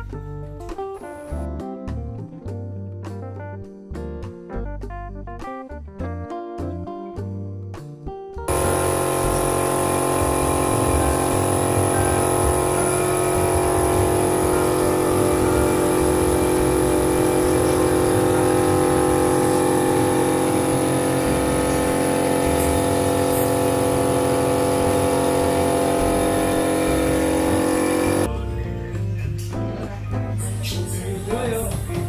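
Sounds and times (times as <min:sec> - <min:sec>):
engine running steadily: 0:08.5 - 0:28.3.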